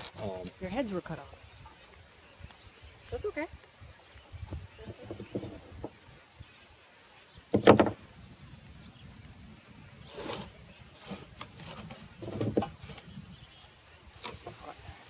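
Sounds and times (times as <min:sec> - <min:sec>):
soft knocks and rustling: 0:04.8 - 0:06.0, 0:11.1 - 0:13.1.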